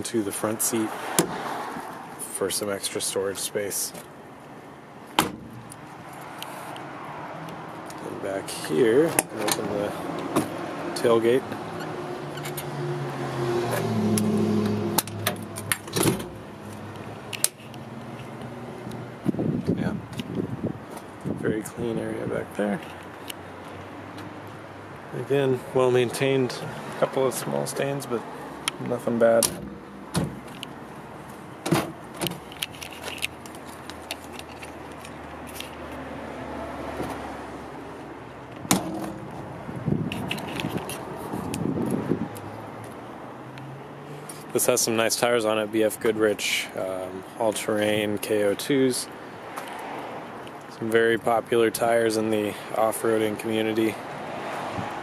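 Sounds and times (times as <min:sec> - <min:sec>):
loud thump: 0:05.2 - 0:05.6
metal tailgate latch clicks and clunks: 0:05.2 - 0:05.6, 0:15.0 - 0:16.4, 0:29.4 - 0:30.6, 0:38.6 - 0:39.3.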